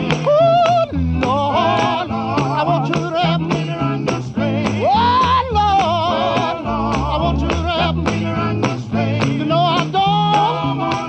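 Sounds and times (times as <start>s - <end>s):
handclaps: 0.0s - 1.4s, 6.9s - 11.0s
electric guitar: 0.0s - 11.0s
male vocal group singing: 0.0s - 11.0s
tambourine: 0.0s - 11.0s
walking bass line: 0.0s - 11.0s.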